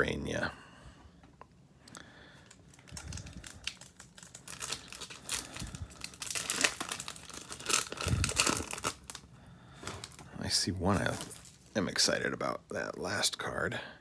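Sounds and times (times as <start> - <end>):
foil wrapper crinkling: 2.4 - 12.1.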